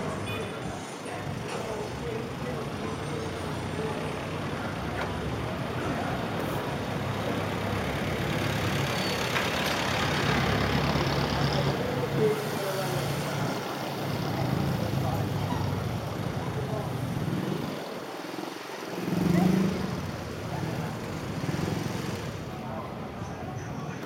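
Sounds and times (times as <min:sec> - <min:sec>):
car engines: 0:00.0 - 0:24.0
motorcycles running: 0:00.0 - 0:24.0
road noise: 0:00.0 - 0:24.0.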